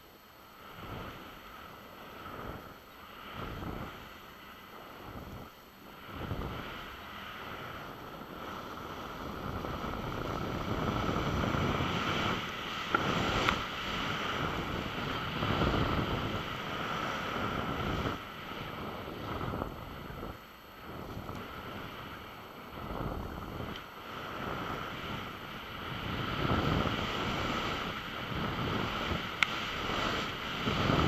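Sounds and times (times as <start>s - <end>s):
wind rushing over microphone: 0.6s - 31.0s
skis swishing through snow: 24.0s - 31.0s.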